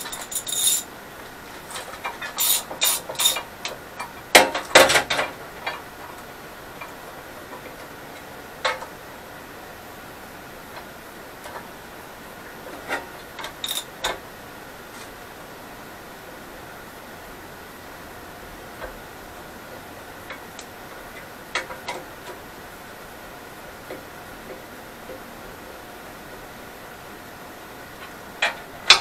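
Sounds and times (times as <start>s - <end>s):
metallic clinks on lathe bed: 0.0s - 0.9s, 13.4s - 13.9s.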